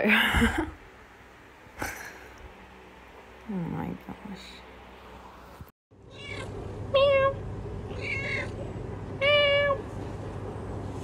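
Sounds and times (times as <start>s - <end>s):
cat meowing: 6.1s - 8.6s.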